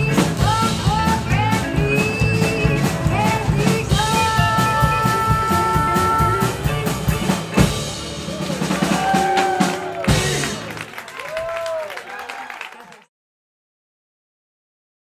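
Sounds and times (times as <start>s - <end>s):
busy drum beat: 0.0s - 11.0s
rock and roll band playing: 0.0s - 11.7s.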